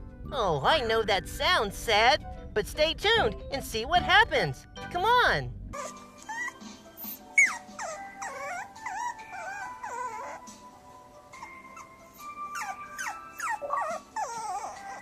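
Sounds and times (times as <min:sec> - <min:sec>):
soft background music: 0:00.0 - 0:15.0
puppy whining and whimpering: 0:05.7 - 0:15.0.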